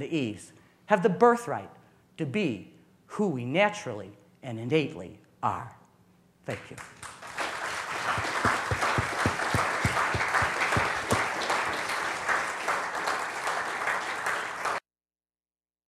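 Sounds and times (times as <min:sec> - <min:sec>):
audience applauding: 0:06.8 - 0:14.8.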